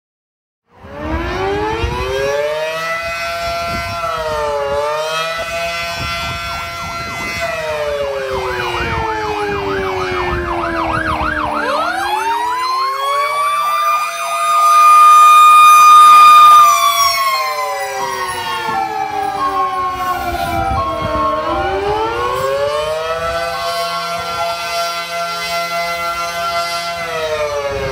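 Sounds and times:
fast siren yelp: 0.7 - 27.9
fire truck siren wailing: 0.7 - 27.9.

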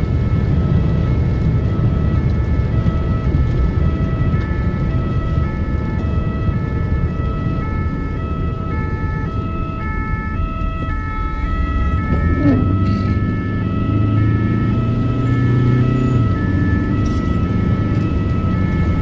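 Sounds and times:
low rumble of moving vehicle: 0.0 - 19.0
two-tone ambulance siren: 0.0 - 19.0.

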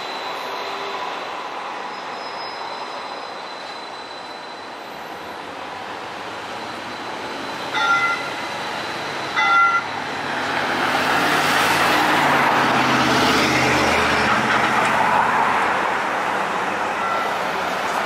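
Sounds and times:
road traffic passing: 5.4 - 18.0.

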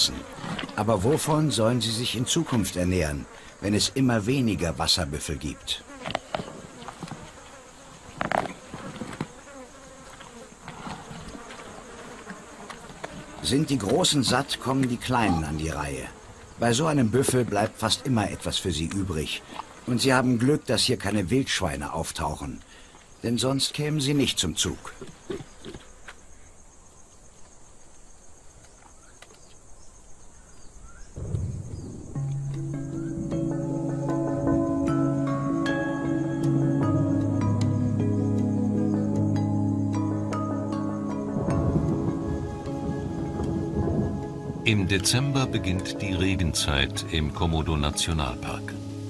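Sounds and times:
flies buzzing: 0.0 - 49.0
pulsing insect chorus: 0.0 - 49.0
faint bird chirps: 28.4 - 34.1
soft ambient music: 31.3 - 49.0
low noise: 41.0 - 49.0.

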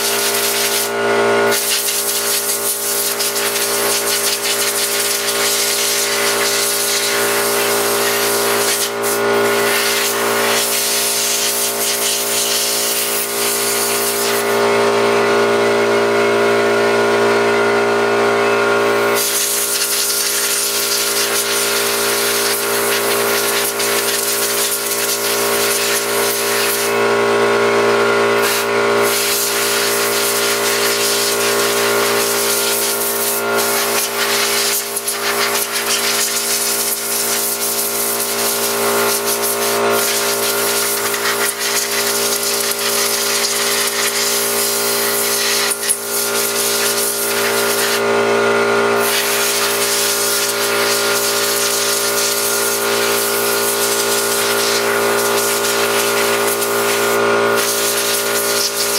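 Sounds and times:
hose nozzle spray hissing: 0.0 - 0.9, 1.5 - 14.6, 19.2 - 26.9, 28.4 - 48.0, 49.0 - 58.9
motor humming: 0.0 - 58.9.

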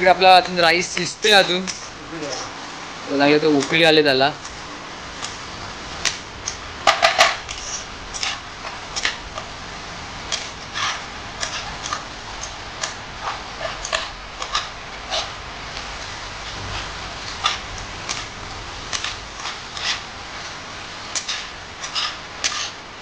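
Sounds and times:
utensil scraping and knocking pot: 6.0 - 9.5, 10.3 - 22.8.

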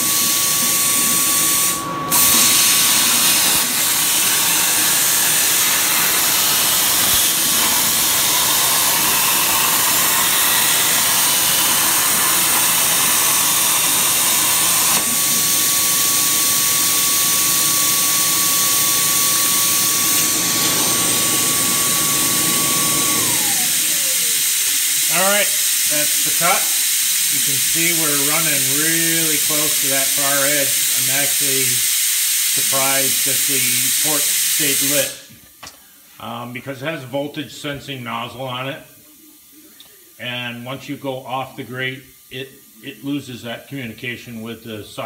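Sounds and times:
plasma cutter hissing: 0.0 - 35.3.

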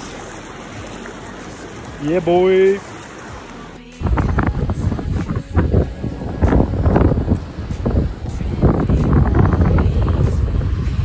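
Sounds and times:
wind buffeting microphone: 4.0 - 11.0.

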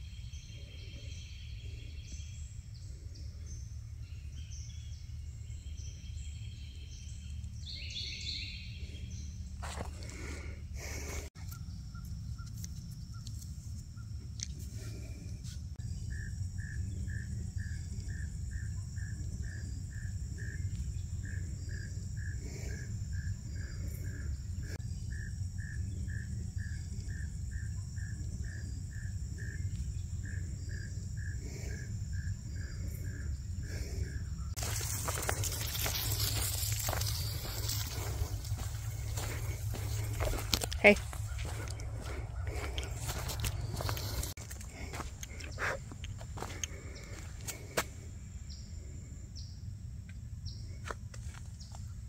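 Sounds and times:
high insect whine: 15.8 - 50.7
rustling hiss: 34.6 - 40.2.

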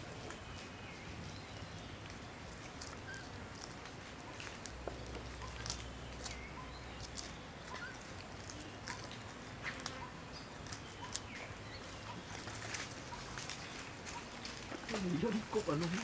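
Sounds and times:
faint animal chirps: 5.4 - 9.2.

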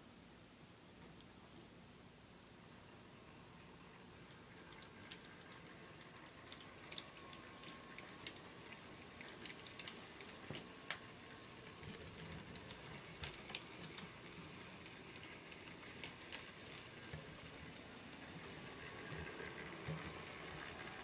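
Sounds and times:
model train wheels clicking: 4.2 - 21.0.

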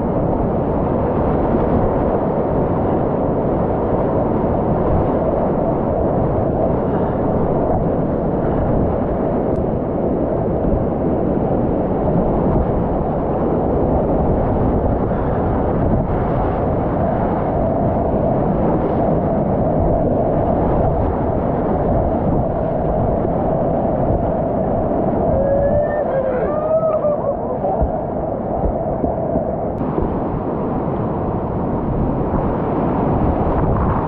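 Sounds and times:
whitewater rapids roaring: 25.2 - 28.7.

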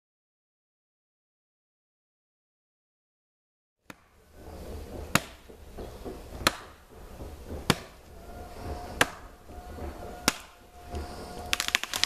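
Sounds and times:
blade chopping a sapling: 5.1 - 5.4, 6.4 - 6.8, 7.6 - 8.0.

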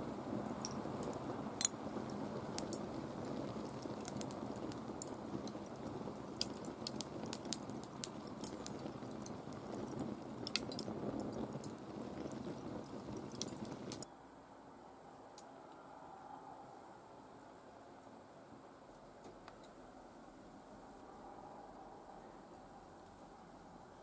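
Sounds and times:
wood fire crackling and popping: 0.0 - 14.1.

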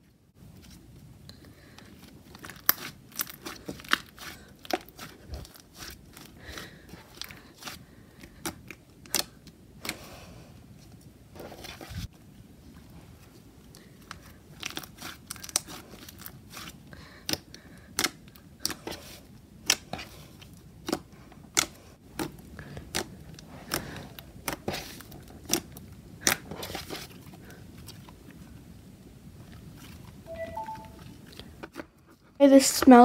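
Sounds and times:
slime squishing: 0.4 - 12.1, 13.1 - 31.4
slime clicking and popping: 20.8 - 23.1.

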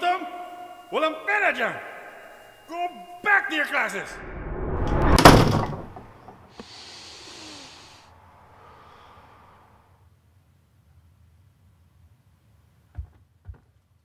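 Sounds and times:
wooden door slamming: 5.1 - 6.1
person exhaling heavily: 6.5 - 9.9.

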